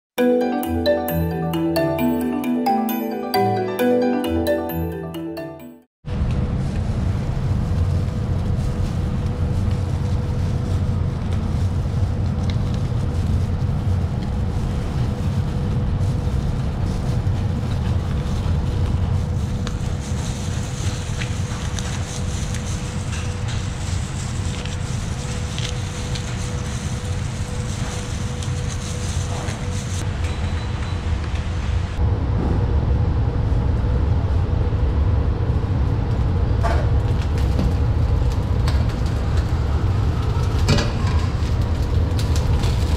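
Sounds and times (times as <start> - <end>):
kitchen fans and burners roaring: 6.0 - 42.9.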